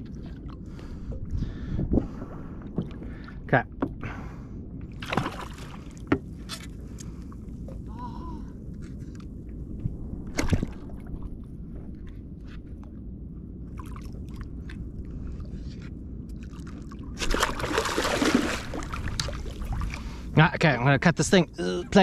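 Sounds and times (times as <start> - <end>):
water lapping against hull: 0.0 - 9.3, 13.6 - 20.9
shark splashing at the surface: 17.2 - 19.4.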